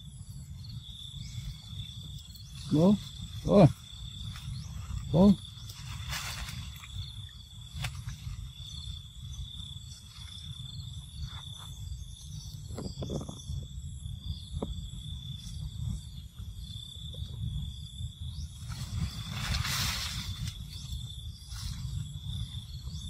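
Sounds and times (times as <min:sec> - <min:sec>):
wind rumble on microphone: 0:00.0 - 0:23.0
branches rustling and snapping: 0:05.6 - 0:07.1, 0:07.7 - 0:08.5.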